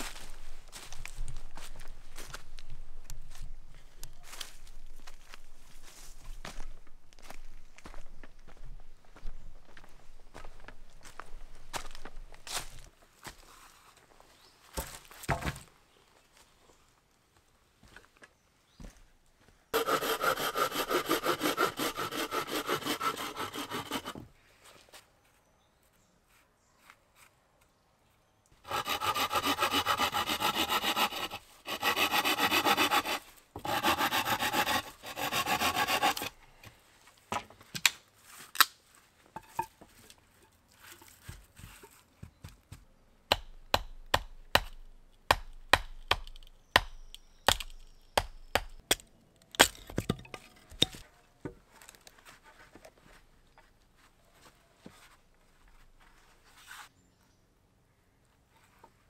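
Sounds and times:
hand saw cutting wood: 19.8 - 24.3, 28.6 - 36.4.

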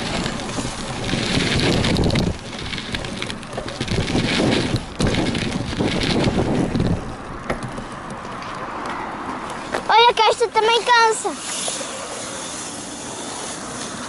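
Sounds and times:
wind buffeting microphone: 0.0 - 8.9
sharp knocks and rattles: 0.0 - 9.0
wheels rumbling on asphalt: 0.0 - 14.0.

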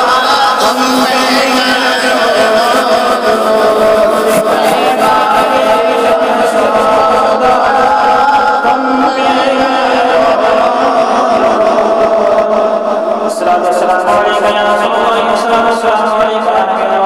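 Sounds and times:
choir-like vocal drone: 0.0 - 17.0
man chanting: 0.0 - 17.0.

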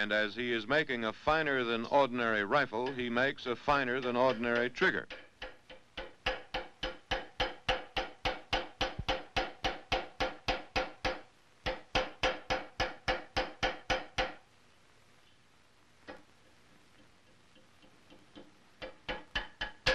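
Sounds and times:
hammer tapping on iron: 2.6 - 14.4, 17.0 - 19.9.

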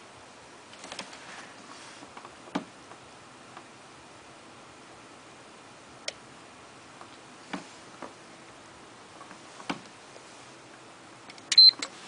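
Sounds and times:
faint handling knocks: 7.4 - 8.2.

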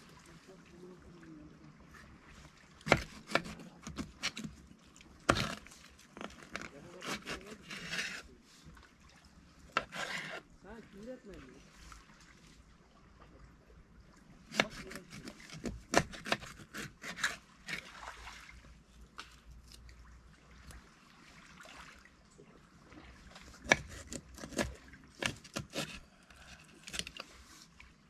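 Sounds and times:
knife chopping fish on board: 2.9 - 4.5, 14.5 - 17.4, 23.6 - 26.0.

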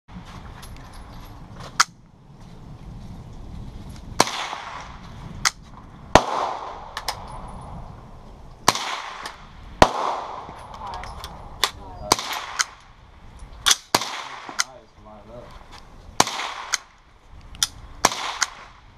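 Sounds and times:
rifle gunshots: 4.2 - 5.0, 6.1 - 7.0, 8.6 - 10.6, 12.1 - 12.8, 13.7 - 14.8, 16.2 - 16.9, 18.0 - 18.8.

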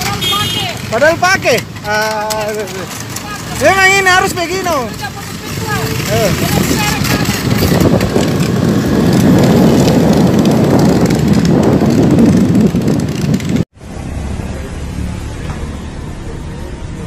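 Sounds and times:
road traffic noise: 0.0 - 17.0
wind buffeting microphone: 5.2 - 13.7.

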